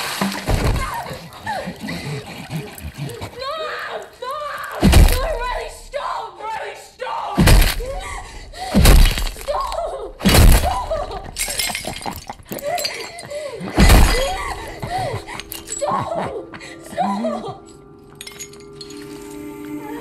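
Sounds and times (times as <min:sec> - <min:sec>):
tile cracking and shattering: 0:08.8 - 0:09.7.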